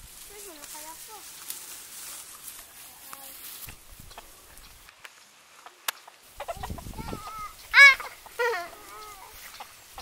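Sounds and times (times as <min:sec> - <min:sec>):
chickens clucking: 0:04.0 - 0:04.8, 0:05.5 - 0:10.0.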